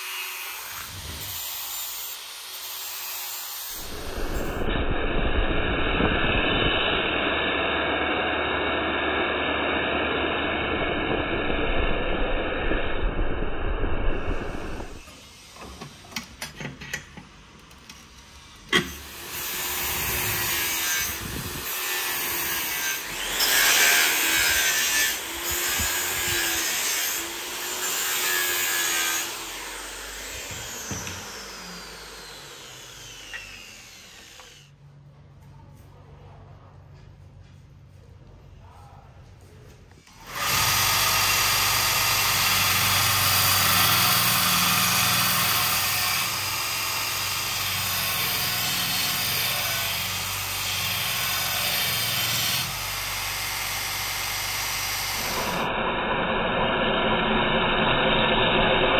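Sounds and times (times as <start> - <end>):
angle grinder grinding steel: 0.0 - 15.2, 18.7 - 34.8, 40.1 - 55.8.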